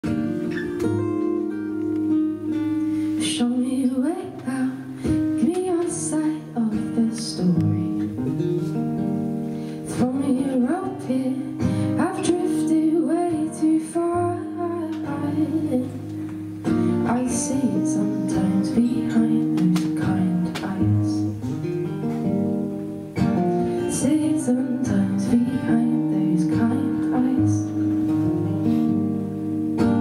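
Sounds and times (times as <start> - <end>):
acoustic guitar: 0.0 - 30.0
woman singing: 3.1 - 8.1, 9.8 - 21.4, 23.8 - 28.0, 29.8 - 30.0.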